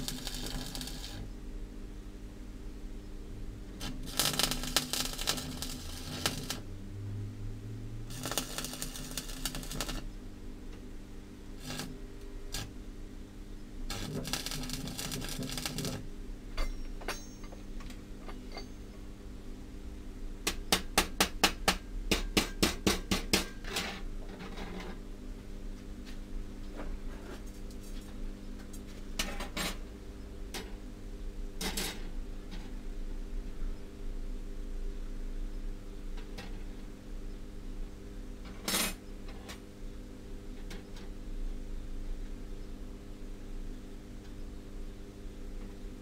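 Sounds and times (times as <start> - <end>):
welding crackle: 0.0 - 1.3, 3.8 - 6.7, 8.1 - 10.1, 11.6 - 12.8, 13.9 - 16.0
welding machine hum: 0.0 - 1.4, 3.6 - 10.2, 11.6 - 12.8, 13.8 - 16.1.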